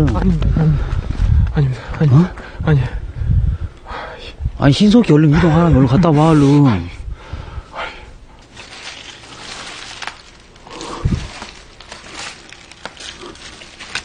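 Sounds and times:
rustling vegetation: 0:08.3 - 0:14.0
footsteps through dry grass: 0:08.4 - 0:14.0.

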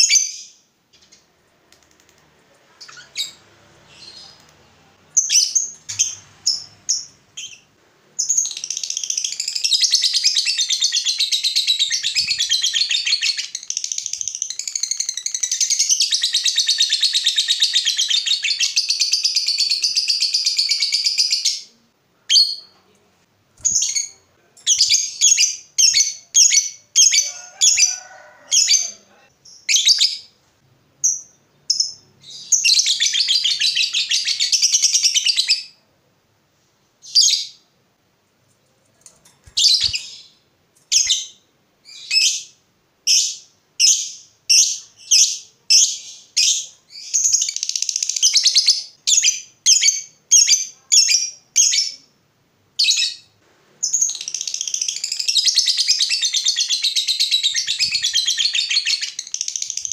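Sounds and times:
lovebird sharp chirps: 0:23.6 - 0:27.2, 0:39.5 - 0:42.5, 0:53.8 - 0:59.9.

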